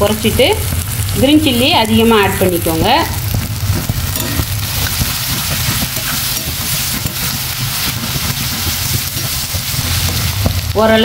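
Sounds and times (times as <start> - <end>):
onions sizzling in oil: 0.0 - 11.0
metal spatula scraping pan: 3.7 - 10.6.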